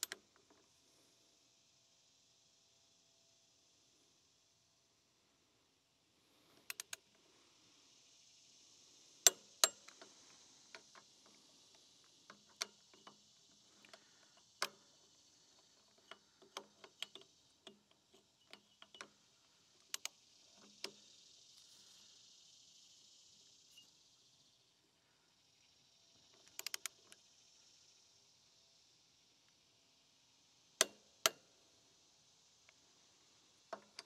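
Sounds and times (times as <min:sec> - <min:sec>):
torque wrench ratcheting and clicking: 0:06.6 - 0:07.0, 0:09.0 - 0:19.2, 0:19.9 - 0:21.7, 0:26.4 - 0:27.2.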